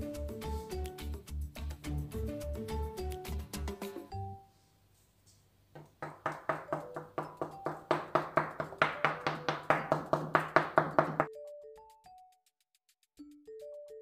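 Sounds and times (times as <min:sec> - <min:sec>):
soft background music: 0:00.0 - 0:04.8, 0:06.3 - 0:10.4, 0:11.0 - 0:12.4
fork tapping dough on wooden board: 0:05.8 - 0:11.3.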